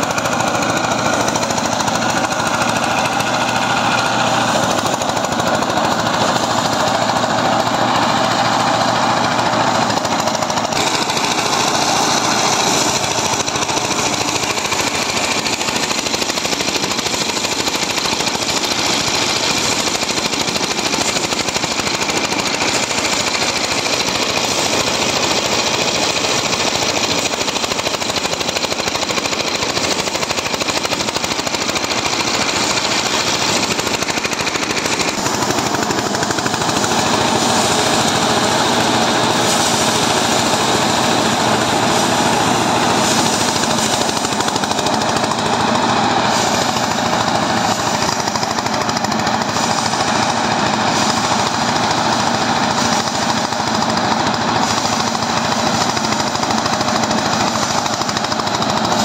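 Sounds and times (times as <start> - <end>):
threshing machine clattering: 0.0 - 59.0.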